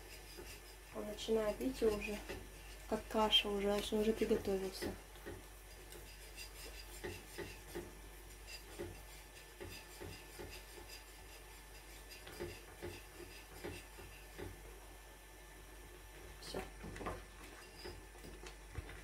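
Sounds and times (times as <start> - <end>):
spoon scraping thick custard: 5.8 - 7.7.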